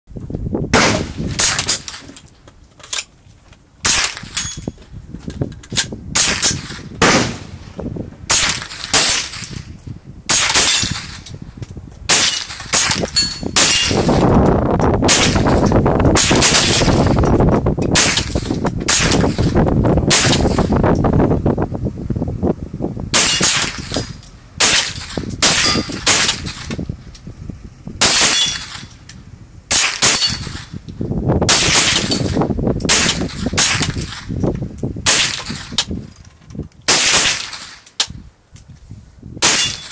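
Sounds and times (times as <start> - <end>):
rifle gunshots: 0.7 - 2.0, 3.8 - 4.4, 6.2 - 7.6, 8.3 - 9.5, 10.3 - 11.2, 12.1 - 14.2, 15.1 - 15.6, 16.2 - 17.2, 18.0 - 20.8, 23.1 - 24.0, 24.6 - 26.7, 28.0 - 28.9, 29.7 - 30.7, 31.5 - 34.3, 35.0 - 35.8, 36.9 - 37.8, 39.4 - 39.9.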